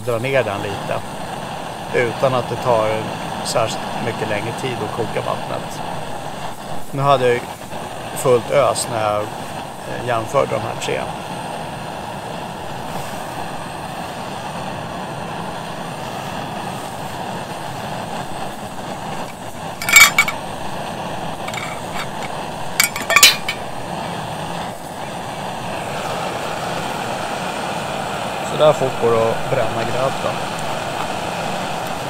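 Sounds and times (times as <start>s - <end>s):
gas burner hissing: 0.0s - 32.0s
metal clinks on cooking pot: 19.8s - 20.4s, 21.5s - 23.7s.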